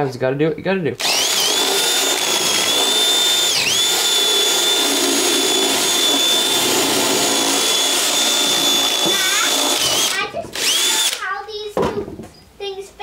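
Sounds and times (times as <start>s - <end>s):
cordless drill whining: 1.0s - 11.2s.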